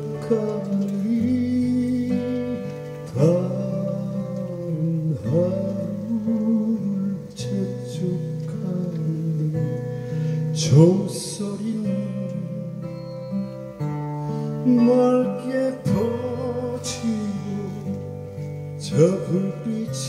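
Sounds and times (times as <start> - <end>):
acoustic guitar strumming: 0.0 - 20.0
man singing long notes: 14.6 - 18.0, 18.8 - 20.0.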